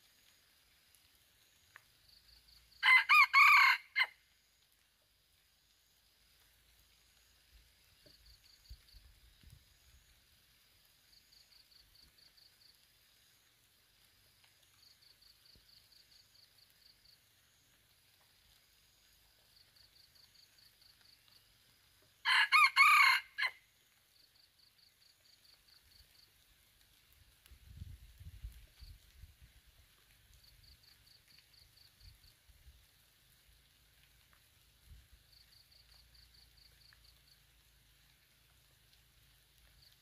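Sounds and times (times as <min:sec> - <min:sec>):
insect chirping: 0:00.0 - 0:40.0
rooster crowing: 0:02.8 - 0:04.2, 0:22.2 - 0:23.6.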